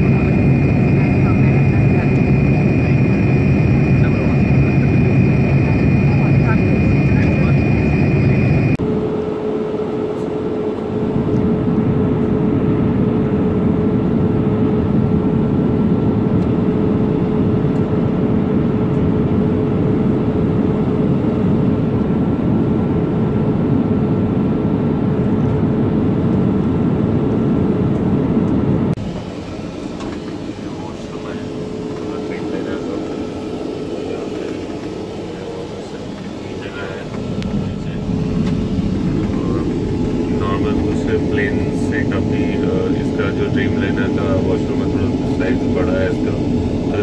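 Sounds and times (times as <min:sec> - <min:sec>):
airplane cabin rushing hum: 0:00.0 - 0:09.2, 0:27.3 - 0:47.0.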